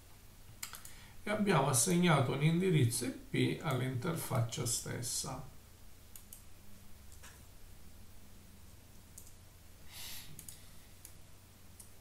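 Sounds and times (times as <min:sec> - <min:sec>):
low steady hum: 0:00.0 - 0:12.0
computer mouse clicks: 0:00.6 - 0:01.0, 0:06.1 - 0:06.5, 0:09.1 - 0:09.4, 0:10.3 - 0:11.2, 0:11.8 - 0:12.0
short breath: 0:00.9 - 0:01.2, 0:09.8 - 0:11.0.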